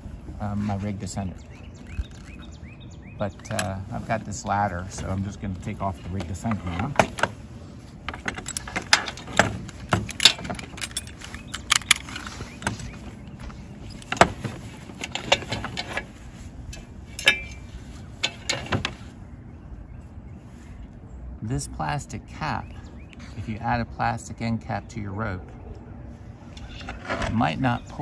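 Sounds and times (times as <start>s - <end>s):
metal carabiners clicking: 1.4s - 2.6s, 3.4s - 3.8s, 8.1s - 19.0s.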